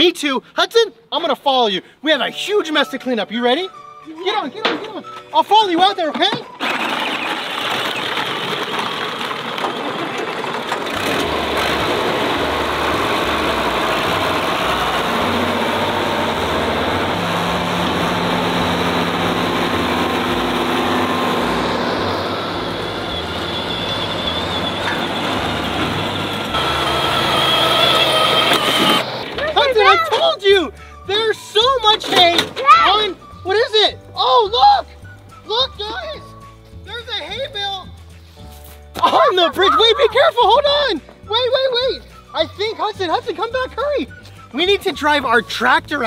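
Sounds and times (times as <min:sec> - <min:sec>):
tractor engine running: 0:06.6 - 0:30.0.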